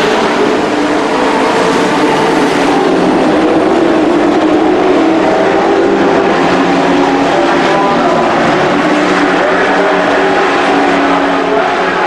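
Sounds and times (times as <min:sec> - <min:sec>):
race truck engines roaring: 0:00.0 - 0:12.0.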